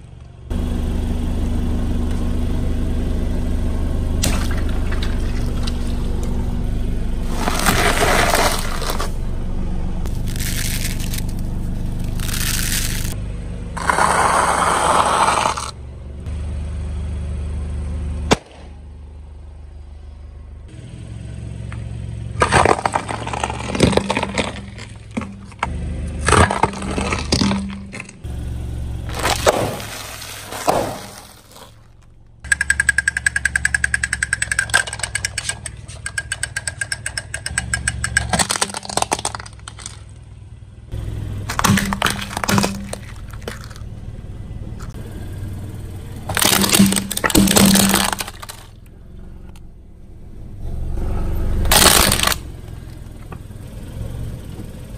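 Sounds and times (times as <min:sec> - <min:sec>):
car engine running low: 0:00.0 - 0:54.9
car tyre rolling over objects: 0:01.4 - 0:15.9, 0:21.7 - 0:54.9
snack bags crunching under tyre: 0:07.3 - 0:09.2, 0:10.1 - 0:13.2, 0:29.1 - 0:32.0, 0:41.4 - 0:43.8, 0:46.3 - 0:48.8, 0:51.7 - 0:52.4.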